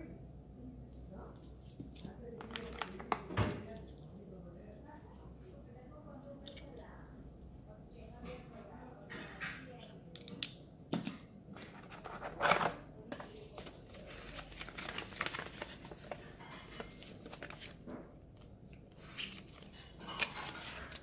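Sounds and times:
paper pages rustling: 0:11.8 - 0:21.0.

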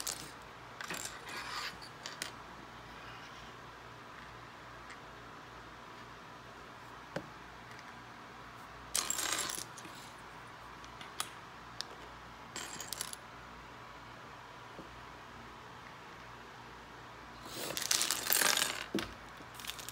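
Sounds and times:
plastic bricks clattering: 0:17.5 - 0:19.9.

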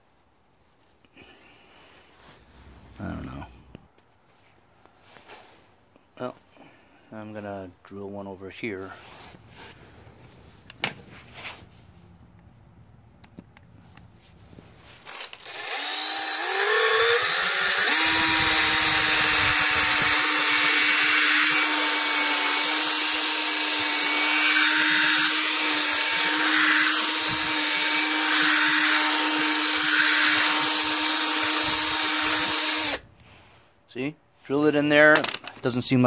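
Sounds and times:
cordless drill boring into rubber: 0:15.0 - 0:33.0.

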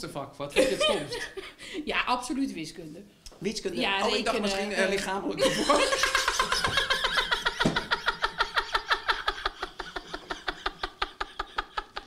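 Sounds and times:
person laughing hard: 0:05.4 - 0:12.0.

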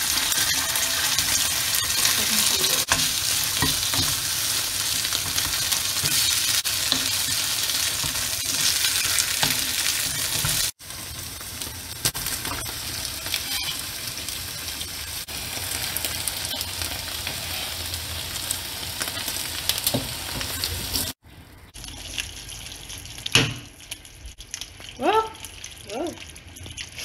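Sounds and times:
spatula scraping a pan: 0:00.0 - 0:04.2
meat sizzling in a frying pan: 0:00.0 - 0:21.2.

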